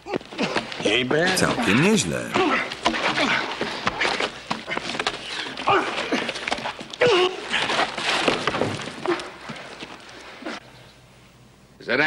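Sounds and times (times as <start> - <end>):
men grunting and shouting: 0.4 - 3.6.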